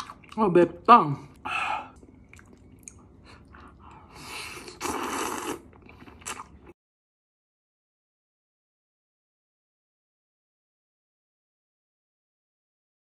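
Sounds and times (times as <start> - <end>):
person chewing: 0.0 - 0.4, 1.3 - 6.8
slurping noodles: 3.6 - 6.7.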